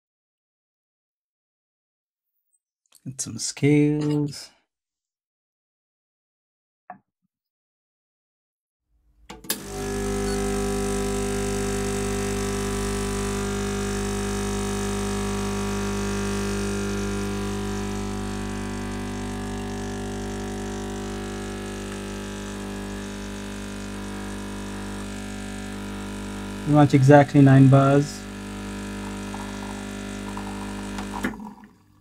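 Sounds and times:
espresso machine pump buzzing: 9.4 - 32.0.

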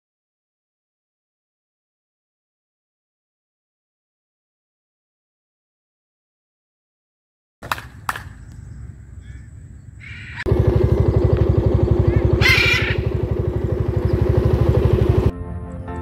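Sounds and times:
harsh squawk: 9.2 - 10.5, 12.0 - 13.4
motorcycle engine idling: 10.4 - 15.3.

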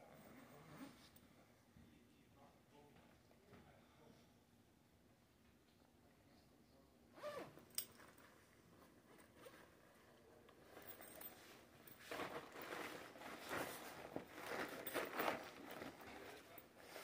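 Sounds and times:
zipper: 0.3 - 1.2, 7.2 - 8.2, 8.9 - 17.0
fabric rustling: 7.2 - 17.0.

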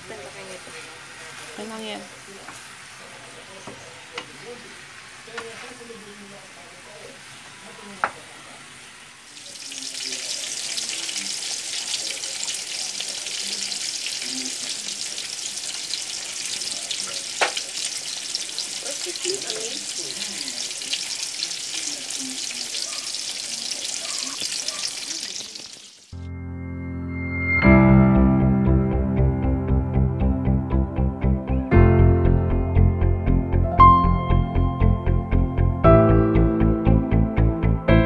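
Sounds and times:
steaks sizzling in hot oil: 7.2 - 26.2.

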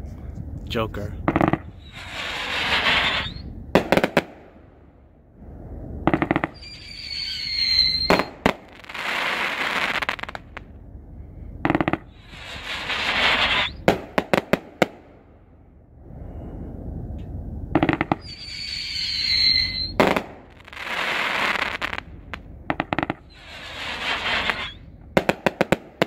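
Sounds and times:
crackling firework shower: 0.2 - 16.6, 17.2 - 26.0
sharp firework bangs: 1.2 - 5.0, 6.0 - 10.7, 11.6 - 15.4, 17.7 - 26.0
high firework whistle: 1.6 - 4.4, 6.1 - 10.5, 11.7 - 15.0, 17.8 - 26.0
firework launch thumps: 11.6 - 15.0.

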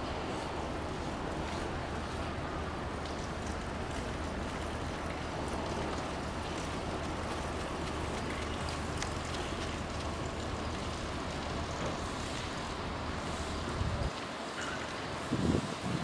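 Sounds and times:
constant low hum: 0.0 - 16.0.

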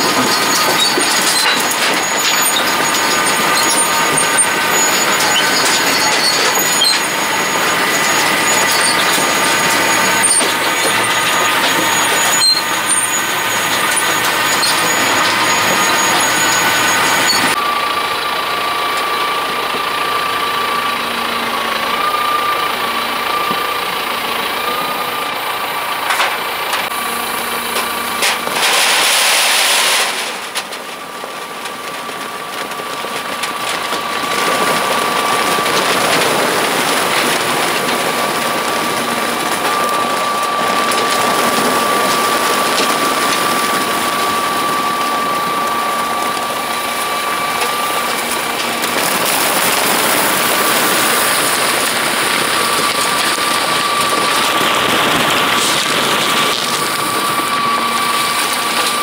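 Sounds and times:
potato harvester machine drone: 0.0 - 59.0
steady high whine: 33.0 - 59.0.

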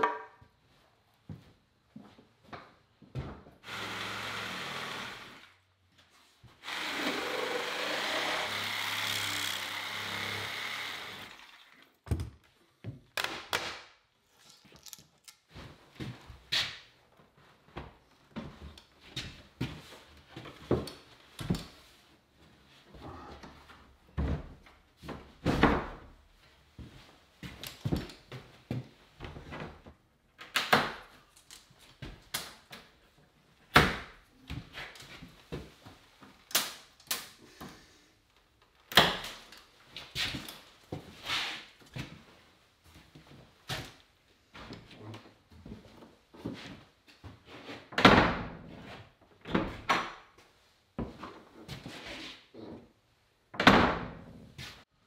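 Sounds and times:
wooden door knocks and clatter: 53.6 - 54.3.

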